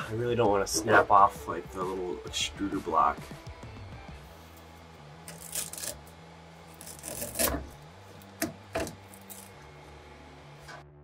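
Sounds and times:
faint background music: 0:00.0 - 0:11.0
cutters snipping plastic: 0:05.3 - 0:06.1, 0:06.7 - 0:09.6.

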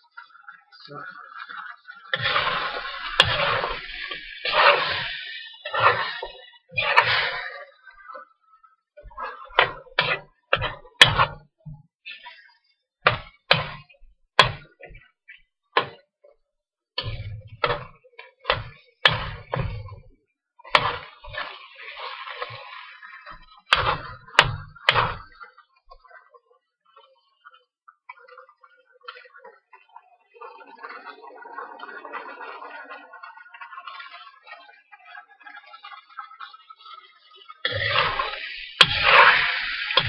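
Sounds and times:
metal spoon scraping a wok: 0:02.2 - 0:07.7, 0:37.7 - 0:40.0.

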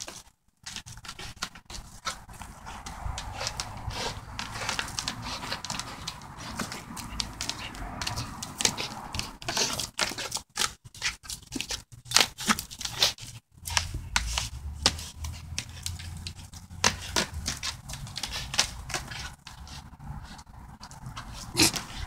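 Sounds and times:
rope crackling and tearing: 0:00.0 - 0:22.0.

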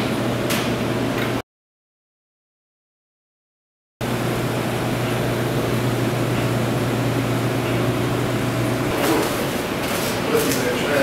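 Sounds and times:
machinery humming: 0:04.0 - 0:11.0.

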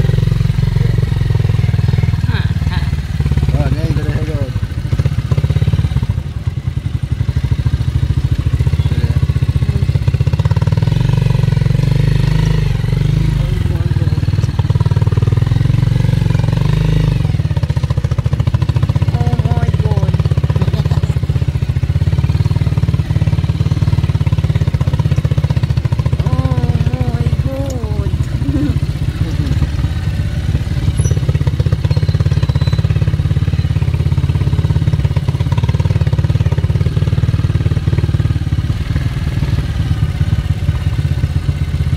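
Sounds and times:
motorcycle engine running: 0:00.0 - 0:41.9
faint voices: 0:26.2 - 0:29.8.

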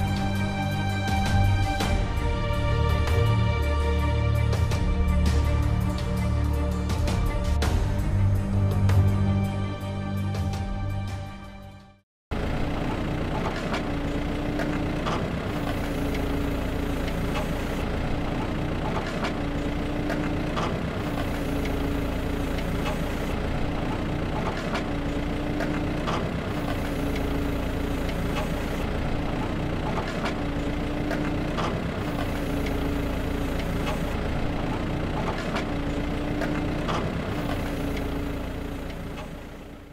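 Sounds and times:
motor whine: 0:12.4 - 0:39.9.

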